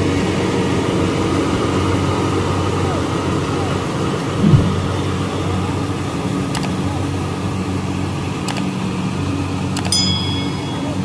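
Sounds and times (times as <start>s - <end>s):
short bright ding: 9.9s - 11.0s.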